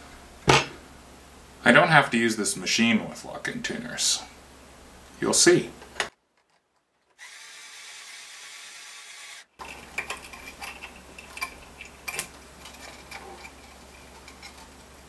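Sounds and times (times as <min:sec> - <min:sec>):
motorized string winder running: 0:07.2 - 0:09.7.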